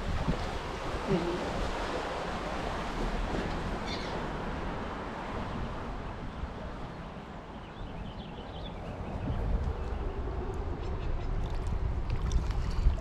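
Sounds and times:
river water rushing: 0:00.0 - 0:07.6
wind on microphone: 0:00.0 - 0:13.0
bird chirp: 0:07.5 - 0:11.4.

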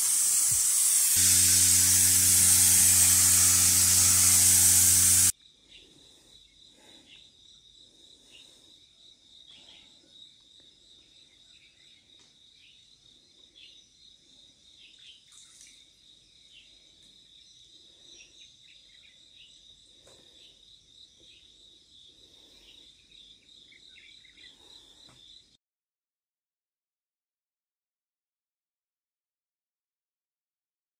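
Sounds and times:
spray gun hissing: 0:00.0 - 0:05.3.

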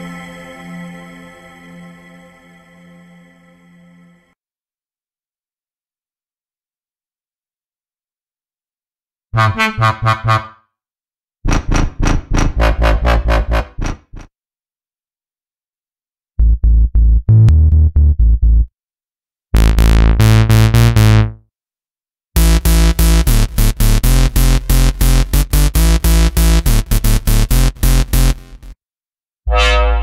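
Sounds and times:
synthesizer staccato bass notes: 0:09.4 - 0:10.6, 0:11.5 - 0:14.3, 0:16.4 - 0:18.7, 0:19.6 - 0:21.4, 0:22.4 - 0:28.8.

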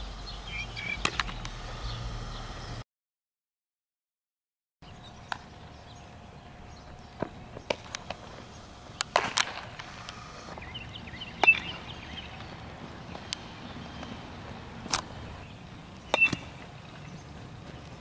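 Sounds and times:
outdoor background noise: 0:00.0 - 0:02.8, 0:04.8 - 0:18.0
bat hitting baseballs: 0:01.0 - 0:01.6, 0:07.2 - 0:08.4, 0:09.0 - 0:09.9, 0:11.3 - 0:15.3, 0:16.0 - 0:16.9
baseballs smacking into gloves: 0:09.0 - 0:09.9, 0:16.1 - 0:16.7.

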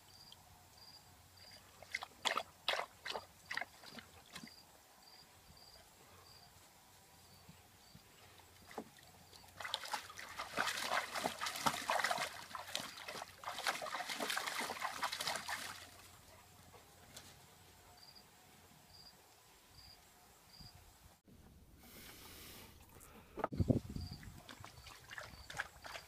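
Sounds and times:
dog splashing in water: 0:01.8 - 0:04.6, 0:08.6 - 0:16.1, 0:24.2 - 0:26.0.

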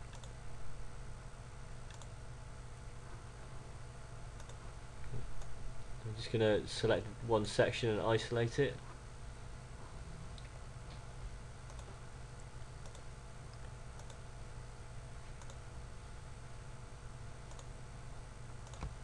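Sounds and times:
computer mouse clicks: 0:00.0 - 0:00.4, 0:01.9 - 0:02.2, 0:04.4 - 0:04.6, 0:11.6 - 0:11.9, 0:12.8 - 0:14.2, 0:15.4 - 0:15.6, 0:17.5 - 0:17.7, 0:18.6 - 0:19.0
low hum: 0:00.0 - 0:19.0.

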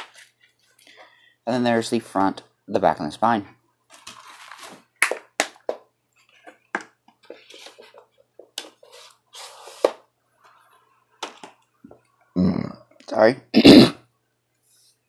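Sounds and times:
rustling and scraping: 0:03.9 - 0:04.9, 0:07.2 - 0:11.5.

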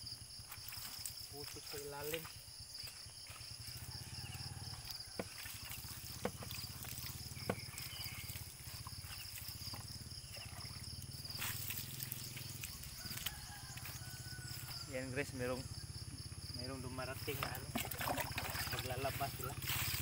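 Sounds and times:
water trickling: 0:00.4 - 0:14.8, 0:17.1 - 0:20.0
water splashing on motorcycle: 0:03.6 - 0:14.8, 0:17.2 - 0:20.0.

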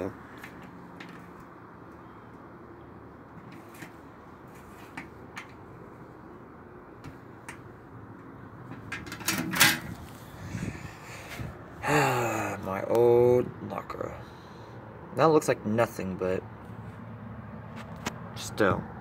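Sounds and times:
metal locker door clattering open: 0:08.8 - 0:10.0.

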